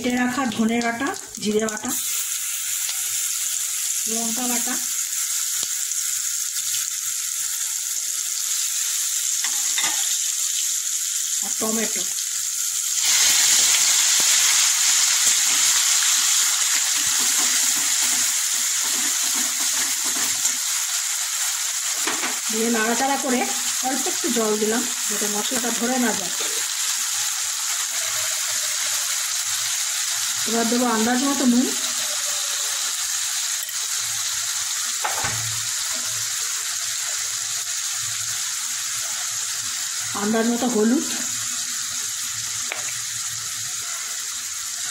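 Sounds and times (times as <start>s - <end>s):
food sizzling in hot oil: 0.0s - 44.9s
metal spatula stirring in wok: 16.7s - 20.5s.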